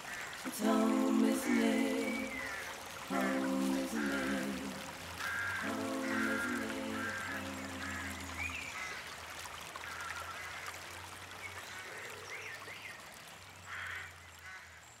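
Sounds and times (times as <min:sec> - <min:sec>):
trickling water: 0:00.0 - 0:15.0.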